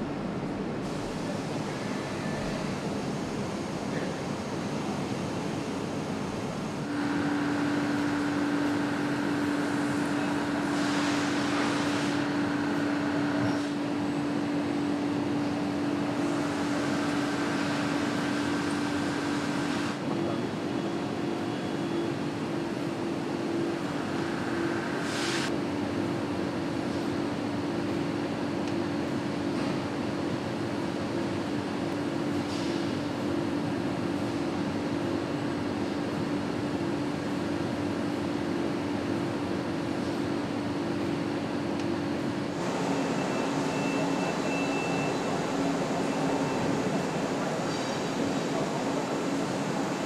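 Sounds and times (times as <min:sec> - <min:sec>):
factory machinery noise: 0:00.0 - 0:50.0
brief hisses: 0:25.0 - 0:25.5.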